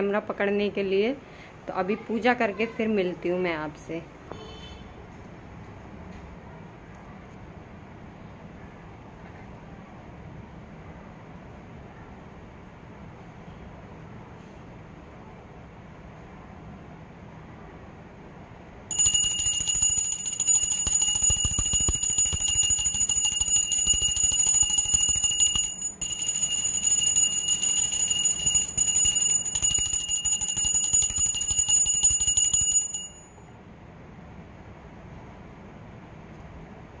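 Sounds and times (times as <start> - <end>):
small hand bell ringing rapidly: 18.9 - 33.4.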